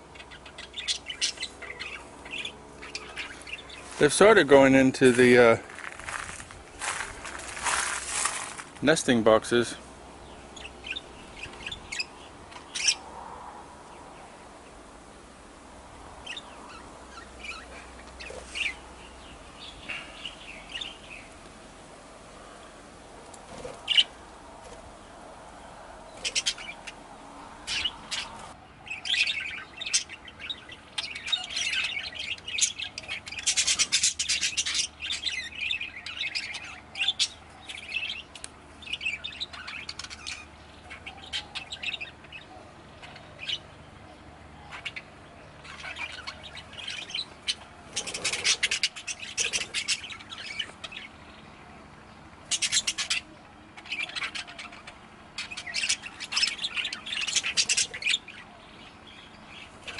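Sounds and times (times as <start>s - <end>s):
budgerigars chirping: 0.0s - 6.2s, 6.8s - 13.1s, 16.2s - 21.4s, 23.5s - 24.2s, 26.1s - 51.8s, 52.4s - 59.9s.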